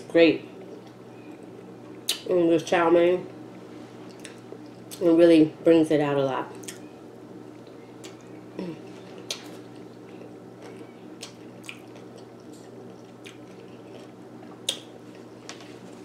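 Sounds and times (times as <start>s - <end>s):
steady low hum: 0.0s - 16.0s
person chewing noodles: 9.1s - 16.0s.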